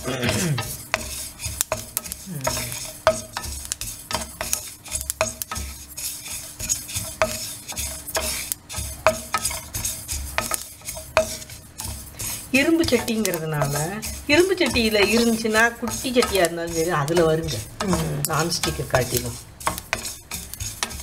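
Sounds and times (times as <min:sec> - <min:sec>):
seeds scraping in a pan: 0:00.0 - 0:21.0
sharp ticks and knocks: 0:00.6 - 0:21.0.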